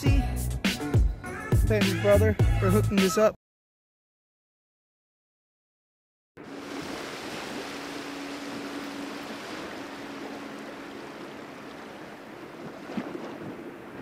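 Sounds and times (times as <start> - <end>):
river rushing: 6.4 - 14.0
wind: 6.4 - 14.0.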